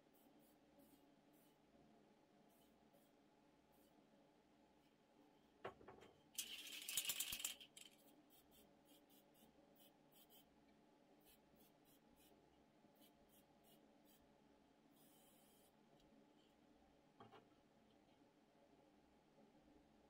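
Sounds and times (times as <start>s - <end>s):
spray paint can hissing: 6.4s - 7.6s.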